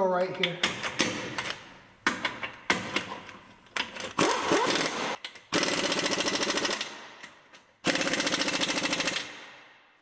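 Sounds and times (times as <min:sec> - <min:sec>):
air impact wrench hammering: 0:04.2 - 0:09.6.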